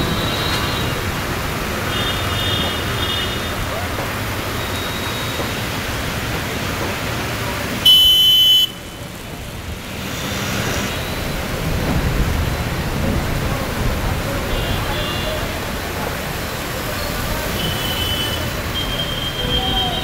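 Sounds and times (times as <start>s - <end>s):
rain: 0.0s - 20.0s
road noise: 0.0s - 20.0s
vehicles rumbling through water: 0.0s - 20.0s
vehicle horn blast: 7.8s - 8.9s.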